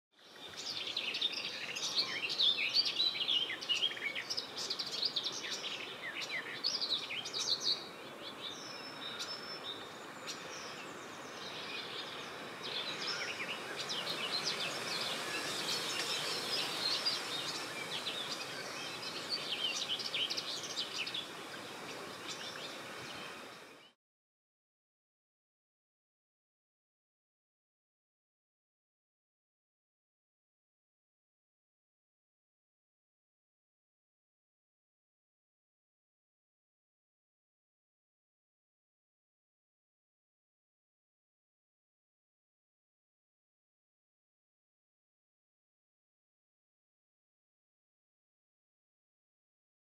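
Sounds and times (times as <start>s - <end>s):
warbler singing: 0.2s - 24.0s
steady background hiss: 0.3s - 23.9s.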